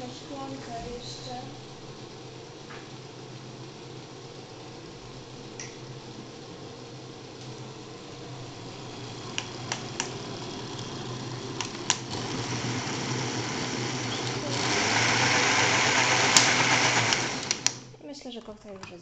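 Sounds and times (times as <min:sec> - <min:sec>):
blender motor running: 0:08.4 - 0:17.9.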